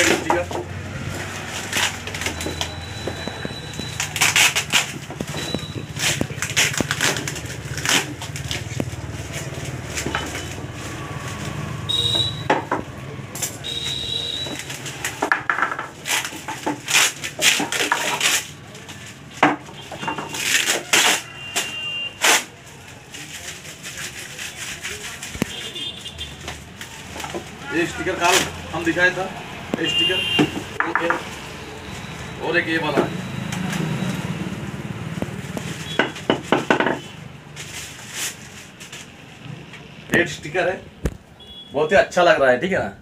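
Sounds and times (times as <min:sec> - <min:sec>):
wooden bats knocking together: 0:00.0 - 0:00.8, 0:12.0 - 0:13.7, 0:14.4 - 0:21.1, 0:26.4 - 0:27.6, 0:29.7 - 0:31.3, 0:35.2 - 0:37.1
plastic wrapping crinkling: 0:00.0 - 0:12.4, 0:13.6 - 0:29.1, 0:35.0 - 0:40.4.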